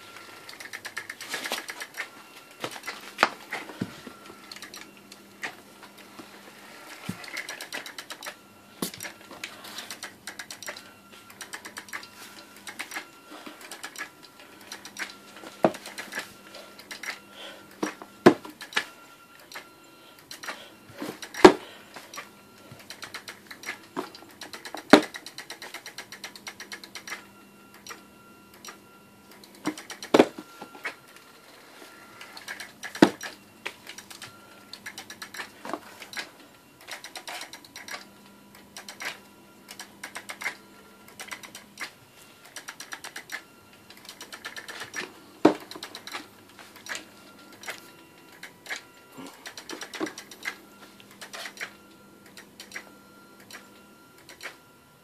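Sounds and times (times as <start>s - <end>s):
faint motor hum: 0.0s - 55.0s
robot motors clicking: 22.1s - 27.2s, 38.8s - 45.1s.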